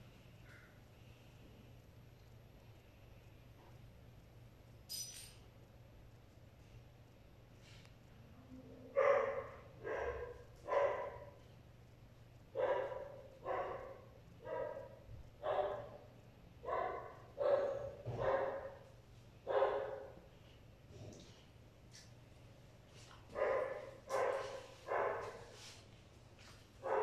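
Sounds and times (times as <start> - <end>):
small dog barking: 8.9 - 11.4, 12.6 - 16.0, 16.6 - 18.8, 19.5 - 20.2, 23.4 - 25.5.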